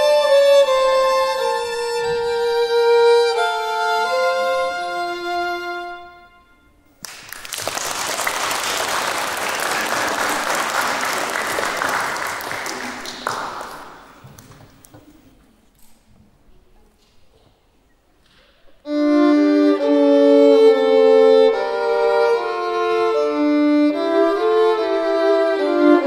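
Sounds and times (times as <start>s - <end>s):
two violins playing: 0.0s - 6.9s, 18.9s - 26.0s
audience applauding: 7.0s - 14.9s.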